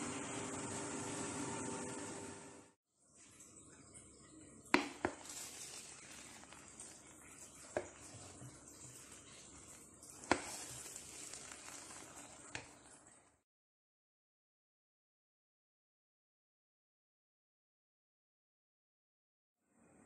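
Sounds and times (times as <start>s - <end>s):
spoon stirring rice: 4.7s - 13.2s.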